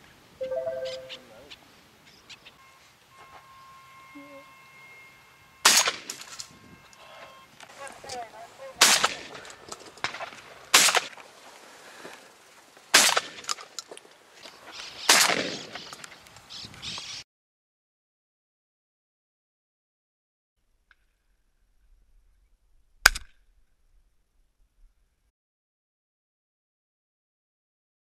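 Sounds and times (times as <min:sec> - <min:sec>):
shotgun shots: 0:05.6 - 0:06.2, 0:08.8 - 0:09.4, 0:10.0 - 0:11.2, 0:12.9 - 0:13.5, 0:15.1 - 0:15.7.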